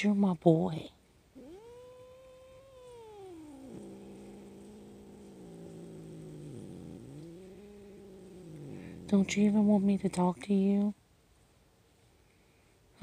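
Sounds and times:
cat yowling and growling: 1.4 - 9.4.

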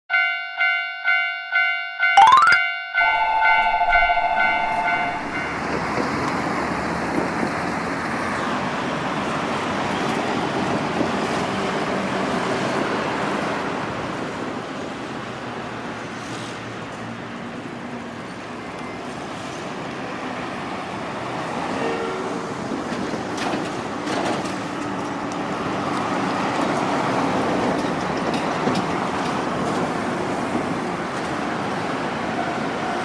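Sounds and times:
chiming jingle: 2.1 - 5.6
cars passing on road: 4.4 - 33.0.

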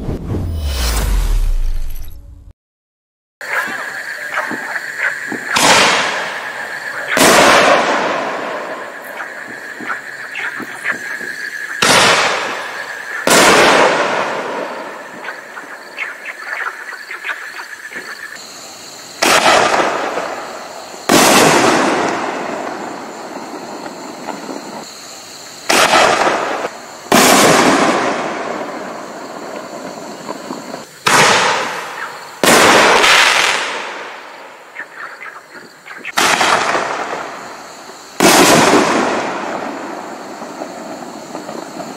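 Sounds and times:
firework launch bang: 0.0 - 2.5, 21.1 - 22.7, 25.7 - 28.5, 31.1 - 31.8, 38.2 - 40.0.

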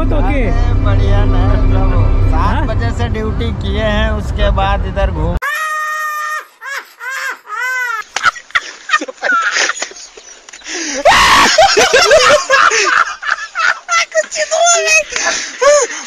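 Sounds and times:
voices laughing and calling: 5.5 - 16.0.

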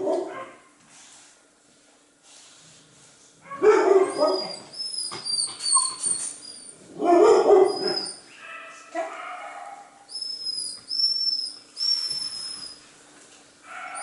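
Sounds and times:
dog barking: 0.0 - 0.7, 3.5 - 4.7, 7.0 - 10.0, 13.7 - 14.0
dog whining: 3.5 - 12.8, 13.7 - 14.0.

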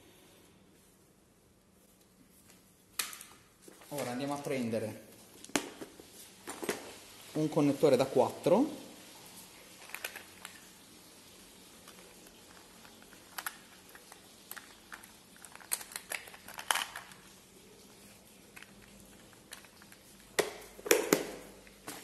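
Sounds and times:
plastic connectors clicking and clattering: 9.8 - 10.7, 11.8 - 17.3, 18.5 - 22.0.

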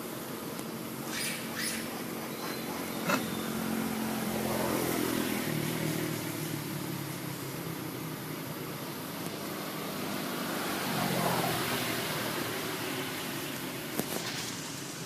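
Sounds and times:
passing vehicle engine hum: 0.0 - 15.0
steady hiss: 5.5 - 15.0.

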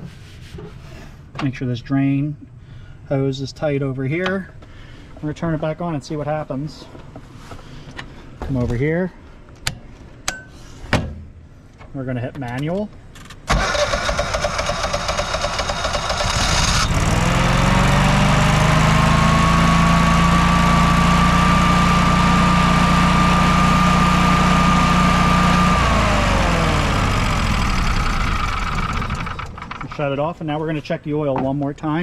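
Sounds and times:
generator engine running: 13.5 - 30.4.

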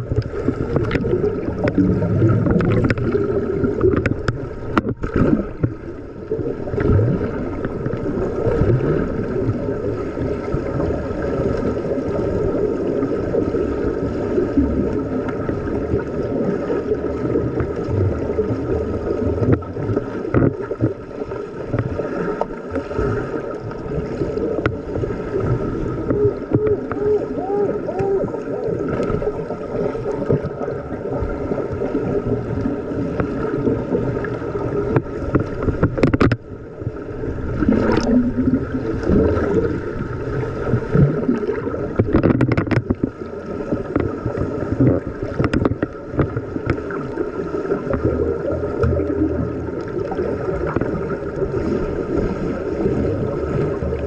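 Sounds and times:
underwater churning and bubbles: 0.0 - 54.0.

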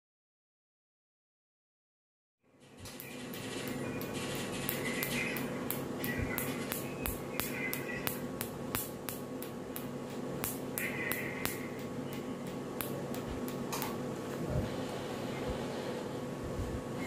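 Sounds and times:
tattoo machine buzzing: 2.9 - 14.0.

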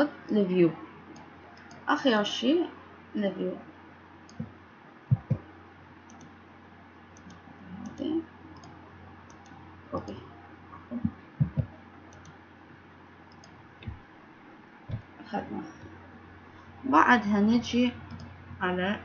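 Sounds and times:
faint steady hum: 0.0 - 19.0
computer mouse clicks: 1.1 - 1.9, 4.3 - 4.5, 6.1 - 6.4, 7.2 - 10.2, 11.0 - 12.4, 13.3 - 14.0, 14.9 - 15.1, 18.1 - 18.4.

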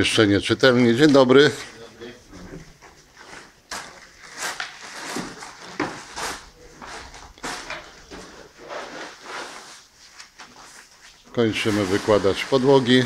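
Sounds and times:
tools scraping adhesive in bucket: 11.6 - 13.0.

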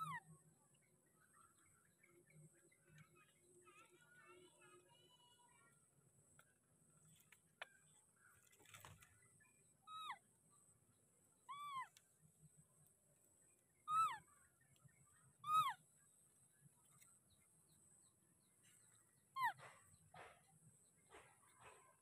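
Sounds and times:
baby monkey high calls: 9.9 - 10.2, 11.5 - 12.0, 13.9 - 14.3, 15.4 - 15.8, 19.4 - 19.7.

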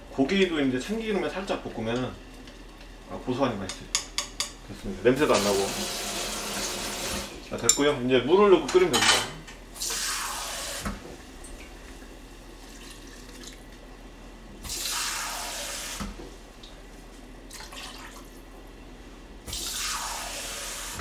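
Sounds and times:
tap water running into sink: 5.4 - 7.3.

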